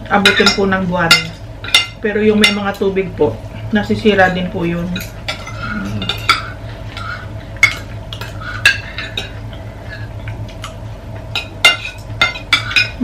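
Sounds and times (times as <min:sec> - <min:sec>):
cutlery scraping plates: 0:04.9 - 0:10.8, 0:11.4 - 0:13.0.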